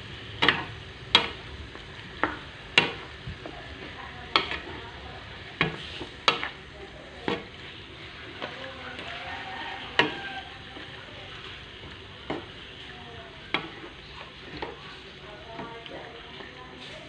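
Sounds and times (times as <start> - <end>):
spatula stirring food in pan: 0.0 - 17.0
steady sizzle: 0.0 - 17.0
spatula knocking against pan: 0.4 - 1.4, 2.2 - 3.1, 4.3 - 4.7, 9.8 - 10.9.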